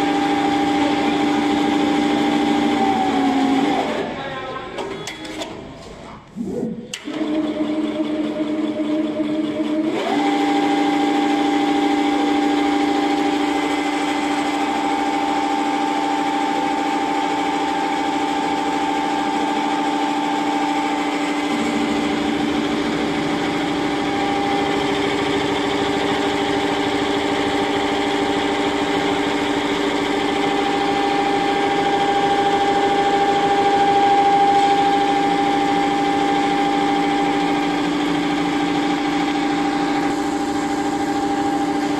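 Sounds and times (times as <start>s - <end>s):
embroidery machine humming: 13.1s - 41.9s.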